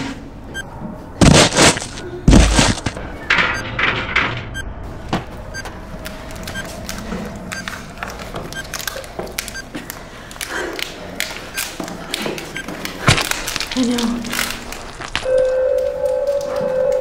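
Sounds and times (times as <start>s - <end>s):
bodies struggling knocks and thuds: 1.2s - 3.0s.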